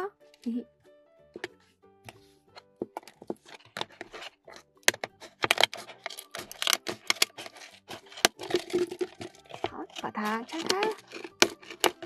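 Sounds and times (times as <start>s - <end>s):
plastic wrap crinkling: 2.9s - 12.0s
scissors snipping: 4.9s - 12.0s.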